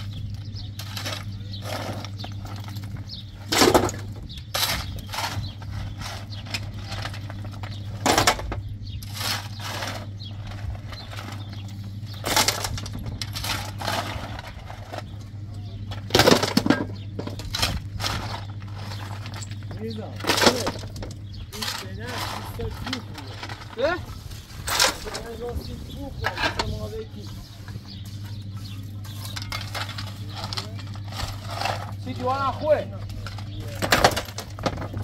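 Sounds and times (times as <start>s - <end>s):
stones clattering into wheelbarrow: 0.0s - 15.3s, 15.9s - 25.5s, 28.6s - 35.0s
steady low hum: 0.0s - 35.0s
shovel scraping stones: 0.7s - 2.8s, 9.0s - 15.2s, 16.0s - 25.4s, 28.6s - 32.6s.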